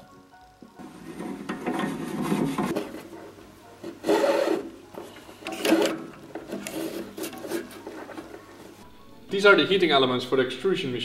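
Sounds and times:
metal parts scraping and rubbing: 0:00.8 - 0:03.2, 0:03.8 - 0:08.8.

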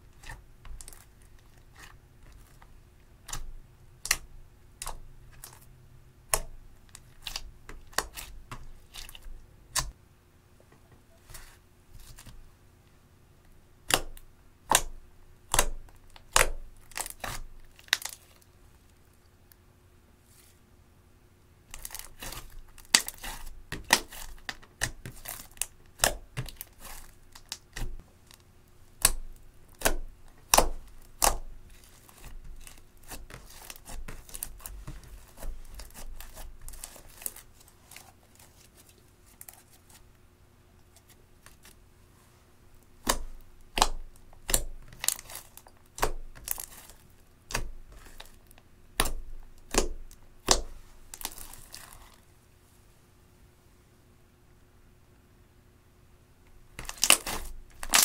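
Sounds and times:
slime squished by hand: 0:56.8 - 0:58.0.

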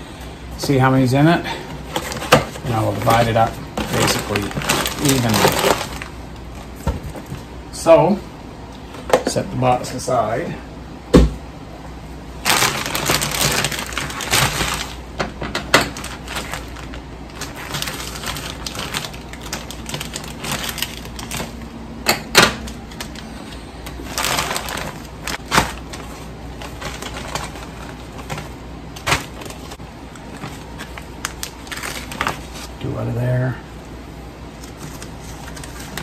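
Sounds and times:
plastic bags crinkling: 0:01.7 - 0:07.4, 0:12.4 - 0:21.8, 0:22.5 - 0:32.8.

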